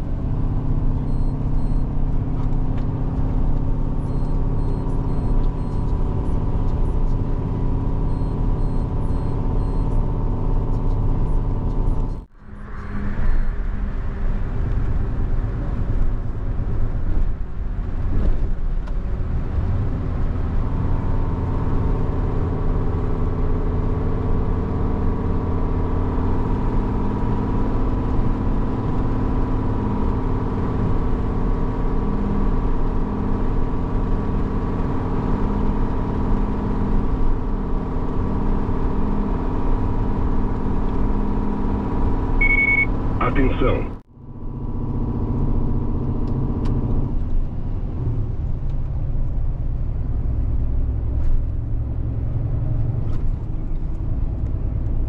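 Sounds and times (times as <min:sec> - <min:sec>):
tyre and road noise: 0:00.0 - 0:55.0
truck diesel engine running: 0:41.8 - 0:45.0.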